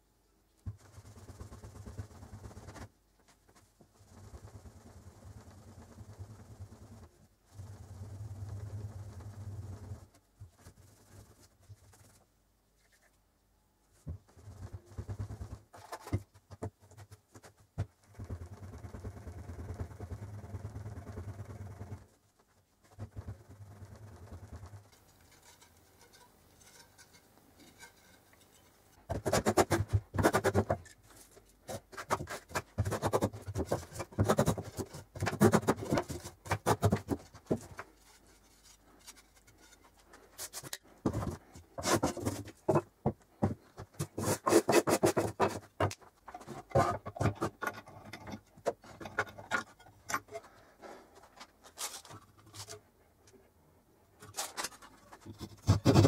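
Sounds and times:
hand tool scraping wood: 24.4 - 52.8, 54.3 - 56.0.

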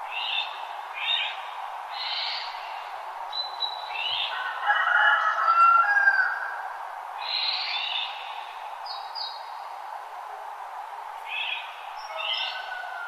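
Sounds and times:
birds chirping: 0.0 - 4.5, 7.2 - 9.7, 11.2 - 13.0
steady background hiss: 0.0 - 13.0
bird warbling song: 0.1 - 4.4, 7.2 - 9.6, 11.2 - 12.8.

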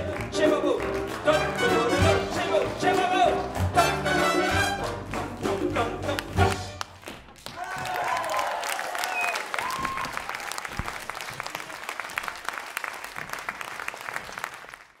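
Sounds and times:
audience applauding: 0.0 - 15.0
cheering shouts: 7.6 - 10.4.

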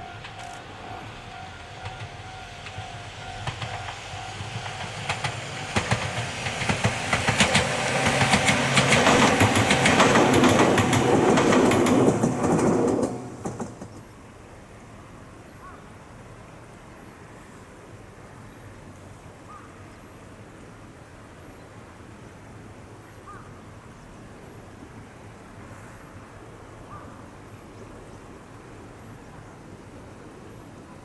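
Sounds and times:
wheels clattering over rail joints: 0.0 - 14.1
electric train passing: 0.0 - 15.2.

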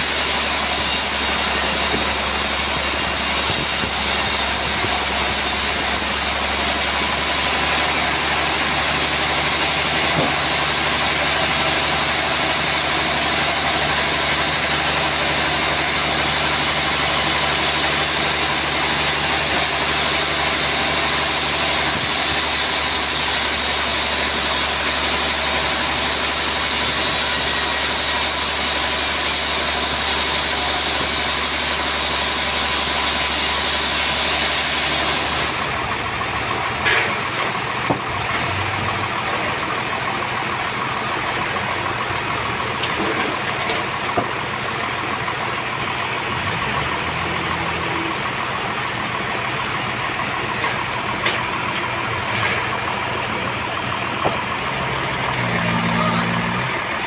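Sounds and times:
band saw blade cutting log: 0.0 - 44.6, 49.6 - 57.0
sawmill drive drone: 0.0 - 57.0.

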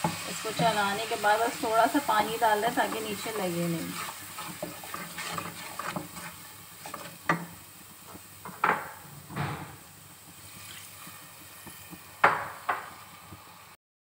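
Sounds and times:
spices sizzling in a pot: 0.0 - 9.1, 9.8 - 13.8
wooden spoon scraping metal pot: 2.8 - 7.4
spoon knocking against pot: 8.4 - 9.0, 12.2 - 13.0.

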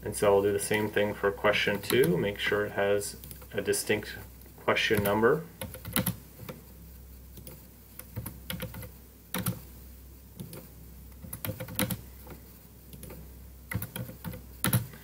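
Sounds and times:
typing on computer keyboard: 4.9 - 6.6, 7.4 - 9.6, 10.4 - 12.0, 12.9 - 15.0.

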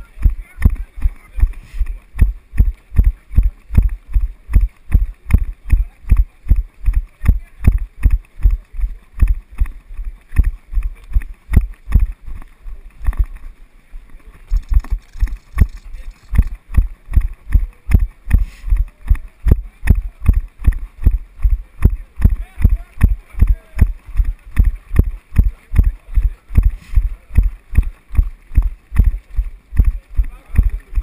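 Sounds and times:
running footfalls thudding: 0.0 - 13.5, 14.6 - 31.0.

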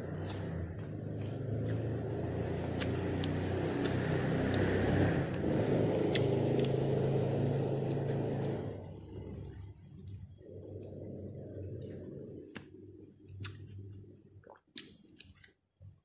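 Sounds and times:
vehicle engine rumbling: 0.0 - 14.2.

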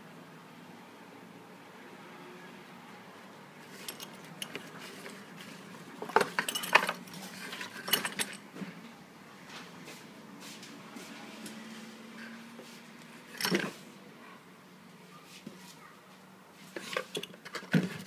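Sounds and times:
metal belt buckle clinking: 3.8 - 4.8, 6.1 - 8.4.

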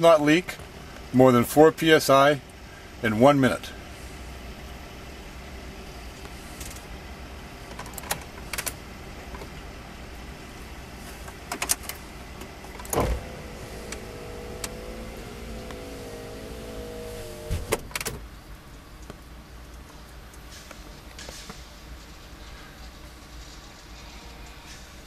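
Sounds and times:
low steady rumble: 8.4 - 19.8
faint wavering whine: 12.7 - 17.8
thump: 17.4 - 17.9.

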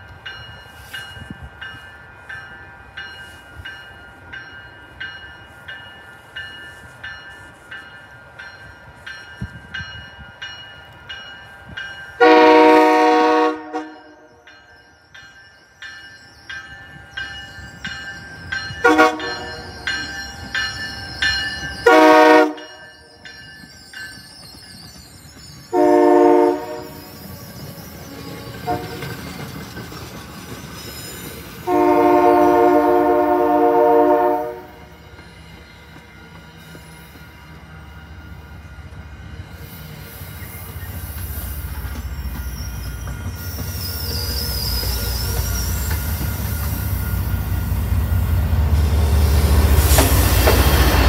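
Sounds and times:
locomotive bell ringing: 0.0 - 39.6, 41.6 - 51.0
train wheels rumbling on rails: 0.0 - 51.0
train horn blasts: 12.2 - 14.5, 18.8 - 19.6, 21.8 - 22.8, 25.7 - 27.1, 28.6 - 29.1, 31.6 - 34.9.

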